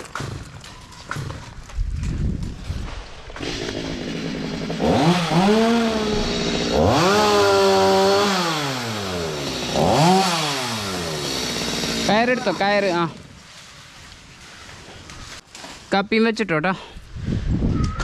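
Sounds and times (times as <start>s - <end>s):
chainsaw revving: 3.3s - 13.1s.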